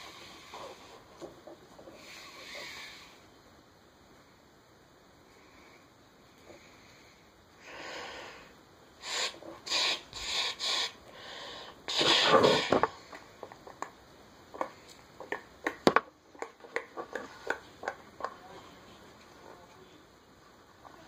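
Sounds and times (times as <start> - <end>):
cord rubbing and rustling: 0.0 - 2.8.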